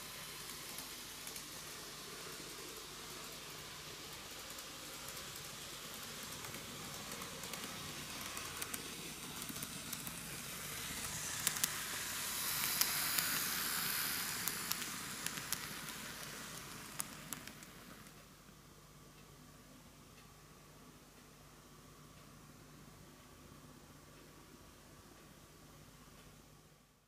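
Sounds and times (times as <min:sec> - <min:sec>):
model train running hiss: 0:00.0 - 0:18.3.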